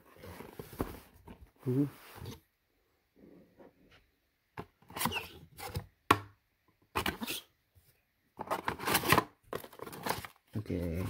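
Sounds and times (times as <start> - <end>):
cardboard and paper rustling: 0.0 - 2.4, 8.4 - 11.0.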